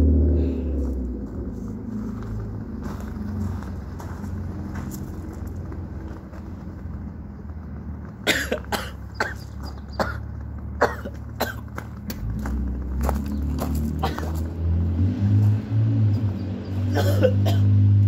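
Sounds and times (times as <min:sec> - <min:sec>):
man coughing hard: 0:08.2 - 0:09.4, 0:10.0 - 0:11.7, 0:14.0 - 0:14.4, 0:16.9 - 0:17.8.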